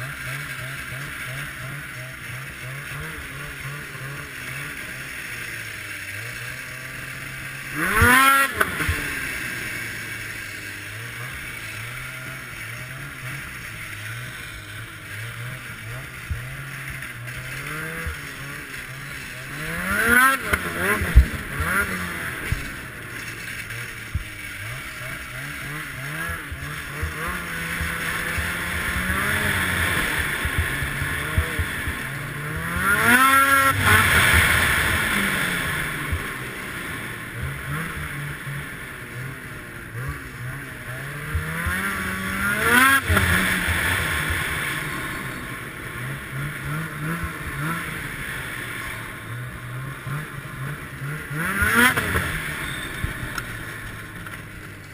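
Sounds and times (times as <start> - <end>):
snowmobile engine revving: 0.0 - 54.9.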